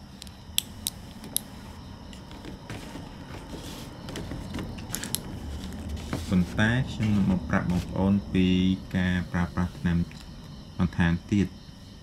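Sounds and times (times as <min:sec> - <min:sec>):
faint rustling: 0:01.0 - 0:08.1.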